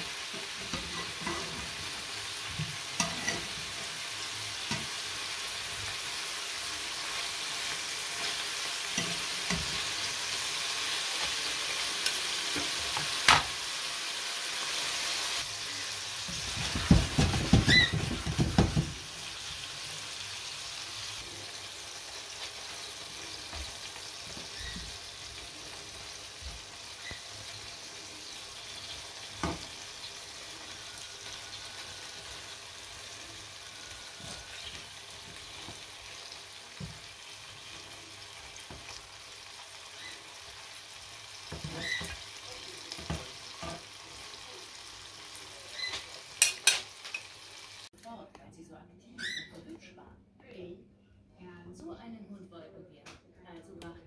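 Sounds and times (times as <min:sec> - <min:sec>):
meatballs sizzling in a frying pan: 0:00.0 - 0:47.9
pan knocking and clattering: 0:16.4 - 0:19.1.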